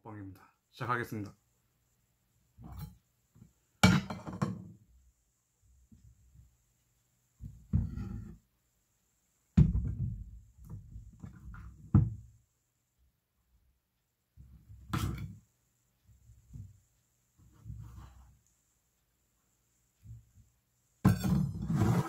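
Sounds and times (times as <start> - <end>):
spoon and dishes clattering: 3.8 - 4.6.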